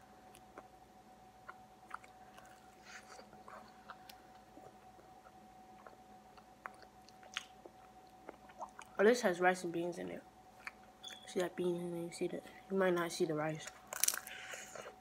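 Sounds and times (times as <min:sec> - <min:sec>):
thin steady whine: 0:00.0 - 0:15.0
chewing with crunches: 0:01.4 - 0:09.0, 0:13.6 - 0:15.0.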